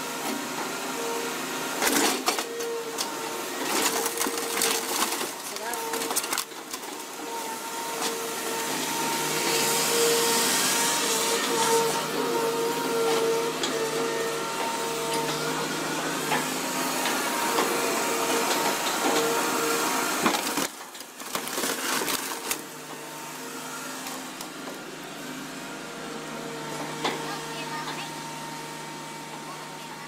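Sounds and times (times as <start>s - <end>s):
scrap metal crunching: 1.9s - 8.3s, 16.4s - 23.0s
excavator hydraulics whining: 5.8s - 20.7s.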